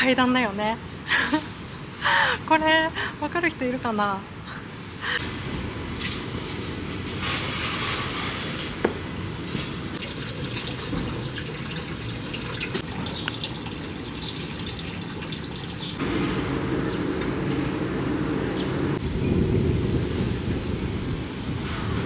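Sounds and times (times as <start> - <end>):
outdoor ambience: 0.0 - 22.0
water running into stone basin: 10.0 - 16.0.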